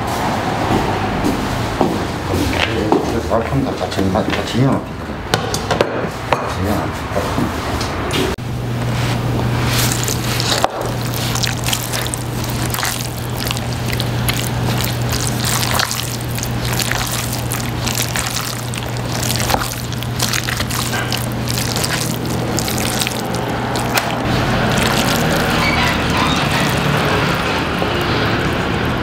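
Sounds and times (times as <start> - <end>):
chopsticks stirring wet noodles: 9.5 - 27.6.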